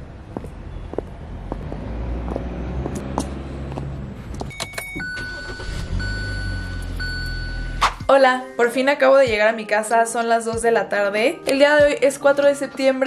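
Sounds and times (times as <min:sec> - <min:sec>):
low engine hum: 0:00.0 - 0:07.8
electronic car chime tone: 0:04.5 - 0:08.0.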